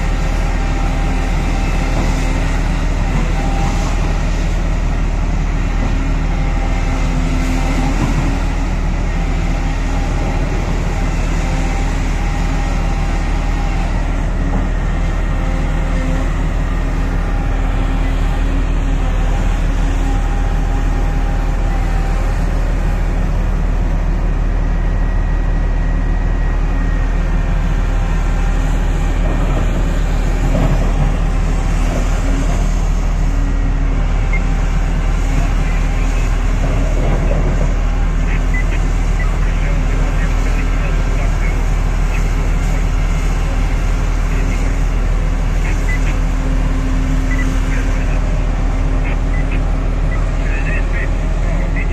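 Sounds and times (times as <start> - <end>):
excavator engine and hydraulics: 0.0 - 51.9.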